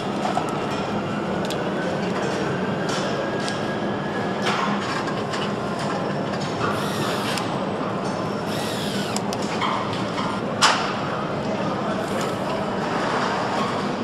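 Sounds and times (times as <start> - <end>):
cordless screwdriver whirring: 6.7 - 7.5, 8.4 - 9.4.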